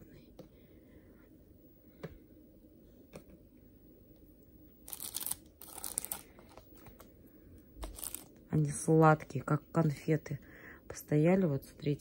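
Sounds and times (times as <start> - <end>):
plastic bag crinkling: 4.8 - 7.1, 7.8 - 8.4.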